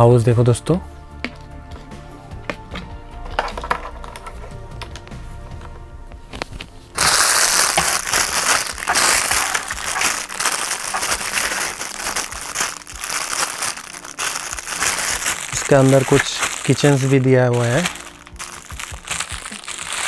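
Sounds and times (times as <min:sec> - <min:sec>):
plastic packaging crinkling: 0:06.4 - 0:20.0.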